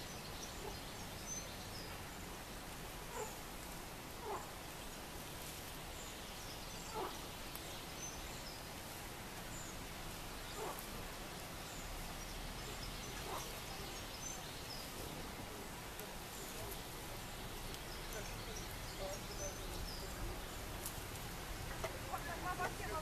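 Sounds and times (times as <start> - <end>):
steady background hiss: 0.0 - 23.0
faint bird chirps: 5.9 - 8.8, 9.4 - 20.8.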